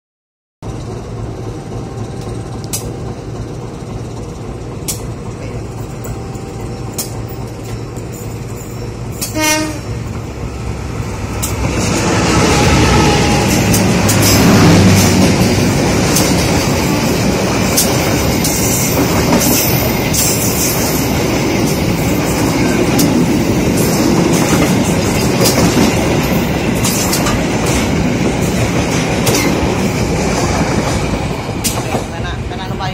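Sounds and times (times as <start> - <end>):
train wheels rumbling on rails: 0.6 - 32.9
clacks over rail joints: 13.4 - 32.2.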